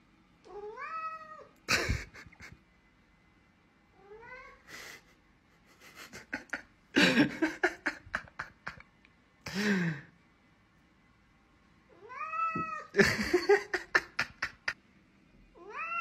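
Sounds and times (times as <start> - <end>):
cat meowing: 0.5 - 1.5, 4.0 - 4.6, 11.9 - 12.9, 15.6 - 16.0.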